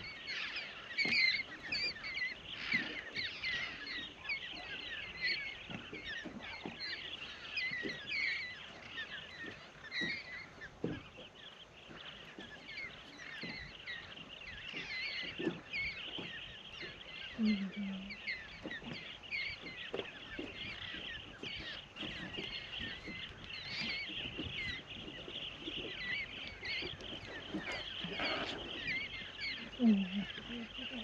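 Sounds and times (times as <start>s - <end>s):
flock of parrots squawking: 26.0s - 31.0s.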